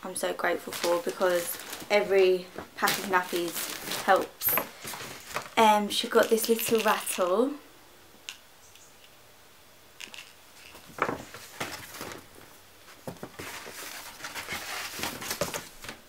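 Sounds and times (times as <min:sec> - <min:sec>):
paper bag rustling: 0:00.4 - 0:05.6, 0:10.6 - 0:16.0.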